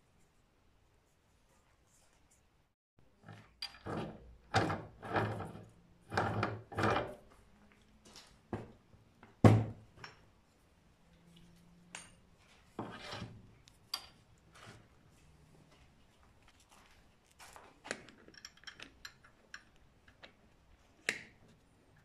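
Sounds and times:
metal scraping and clunking: 3.2s - 7.3s.

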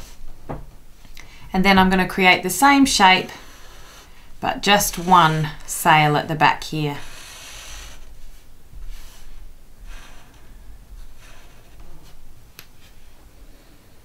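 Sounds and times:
marker scratching on paper: 2.8s - 12.2s.

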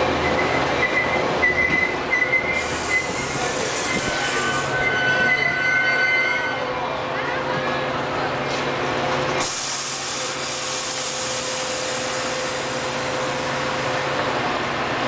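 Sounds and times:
train wheels squealing: 0.2s - 6.7s
burst of hiss: 9.4s - 13.0s.

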